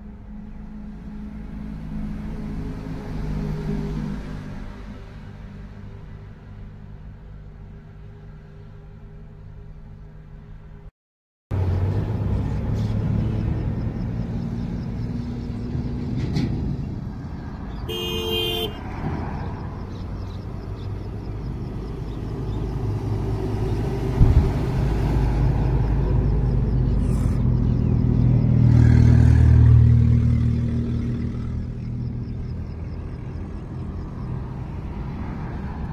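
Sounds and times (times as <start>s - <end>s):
highway traffic rumble: 0.0s - 10.9s, 11.5s - 35.9s
loud vehicle passing: 0.3s - 8.7s, 11.5s - 35.9s
vehicle horn honking: 17.9s - 19.0s.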